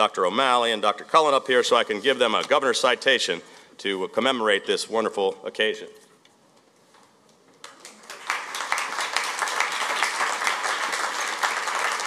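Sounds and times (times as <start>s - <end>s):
audience applause: 7.6s - 12.0s.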